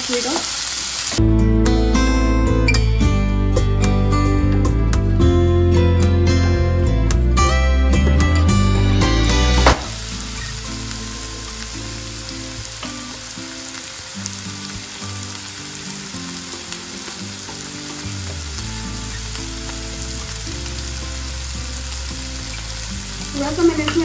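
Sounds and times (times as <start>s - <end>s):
vegetables sizzling in oil: 0.0s - 1.2s, 8.8s - 24.0s
guitar music: 1.2s - 24.0s
soft background music: 1.2s - 24.0s.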